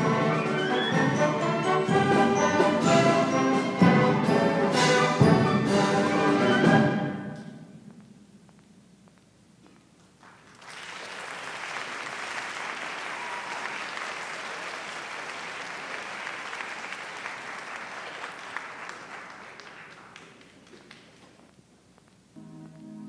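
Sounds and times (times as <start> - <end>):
audience applauding: 10.2 - 21.4.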